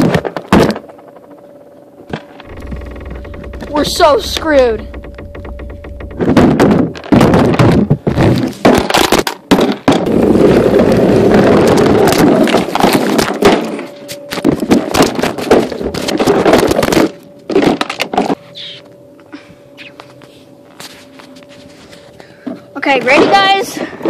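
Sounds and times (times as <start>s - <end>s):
plastic toy crashing on concrete: 6.6s - 10.8s.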